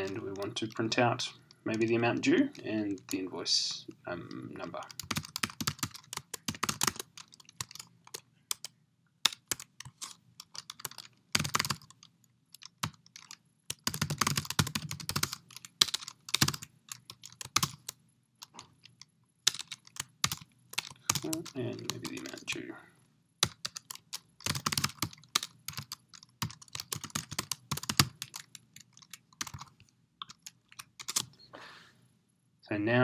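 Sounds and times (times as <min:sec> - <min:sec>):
typing on computer keyboard: 0:04.8 - 0:22.6, 0:23.4 - 0:31.3.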